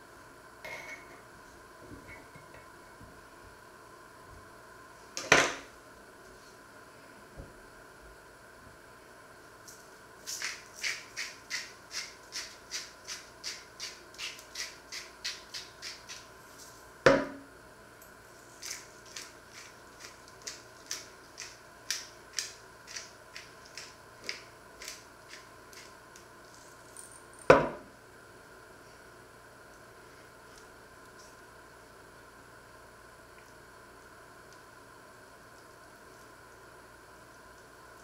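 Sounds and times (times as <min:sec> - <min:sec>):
pepper mill grinding: 0:10.2 - 0:16.3, 0:18.5 - 0:27.2.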